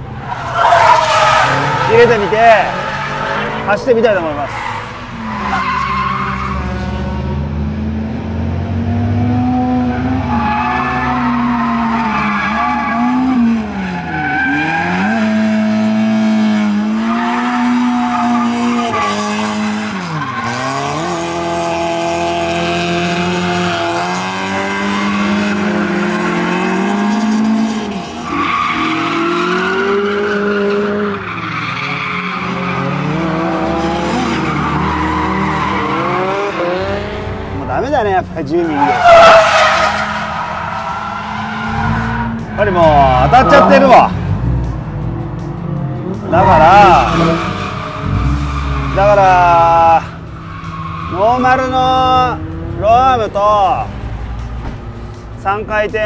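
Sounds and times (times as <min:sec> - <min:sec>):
car engine revving hard: 0:14.3 - 0:37.9
tyre squeal: 0:38.6 - 0:43.9, 0:46.3 - 0:52.2.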